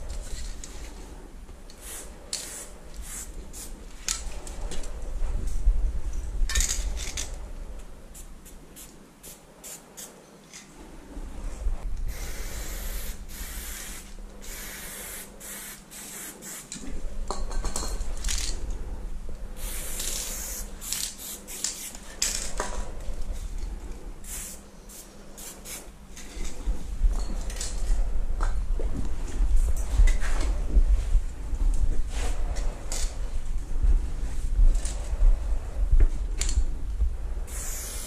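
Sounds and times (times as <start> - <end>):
spray paint can hissing: 1.8 - 3.7, 8.2 - 10.1, 12.1 - 16.8, 19.6 - 22.0, 24.2 - 25.9, 37.5 - 38.0.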